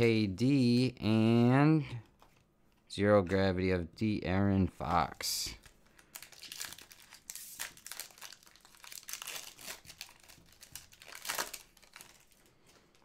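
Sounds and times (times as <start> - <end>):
foil wrapper crinkling and tearing: 5.5 - 13.0.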